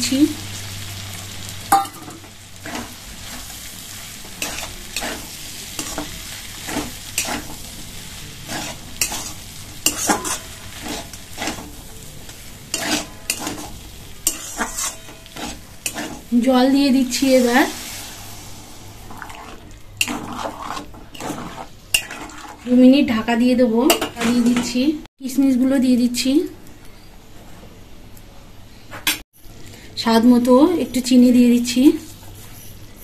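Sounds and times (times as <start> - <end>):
low sizzle: 0.0 - 28.8
metal spatula scraping a pan: 2.6 - 23.2.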